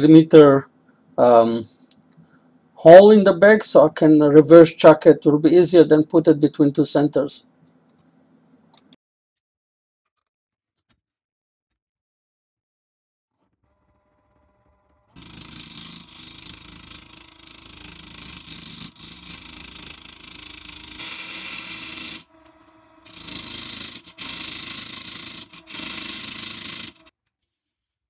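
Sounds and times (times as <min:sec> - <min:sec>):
faint motor hum: 0:13.6 - 0:27.1
turning tool scraping wood: 0:15.2 - 0:27.1.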